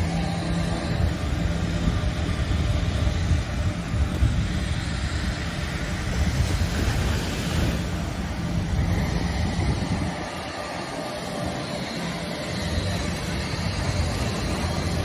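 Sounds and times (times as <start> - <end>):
jet engines rumbling: 0.0 - 15.0
low hum: 0.0 - 15.0.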